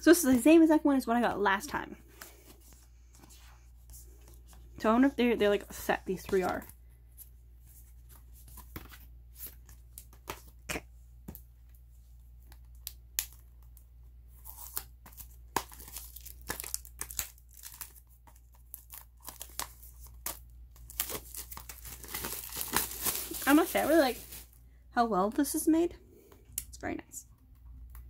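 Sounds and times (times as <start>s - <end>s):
plastic shrink wrap crinkling: 14.4s - 24.6s.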